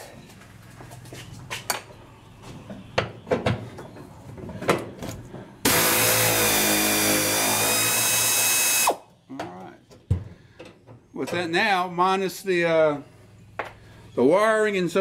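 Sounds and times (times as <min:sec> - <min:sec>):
impact wrench running: 0:05.7 - 0:09.0.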